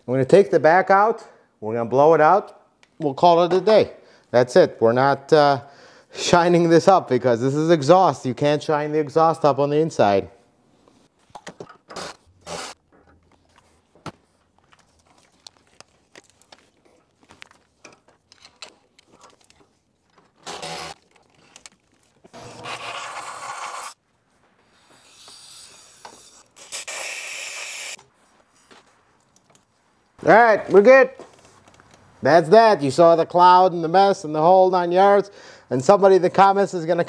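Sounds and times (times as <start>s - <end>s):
tools clicking and scraping: 11.3s - 23.2s.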